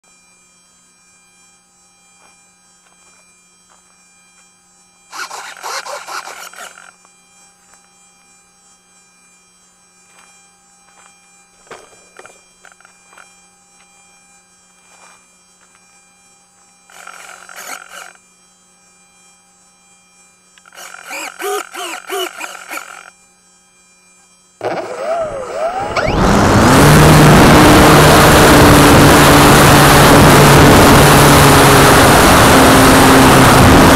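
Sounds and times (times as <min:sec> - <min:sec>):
electric motor whining to full throttle: 0:00.3 - 0:33.9
short bursts of sound: 0:05.1 - 0:06.9, 0:20.6 - 0:23.1.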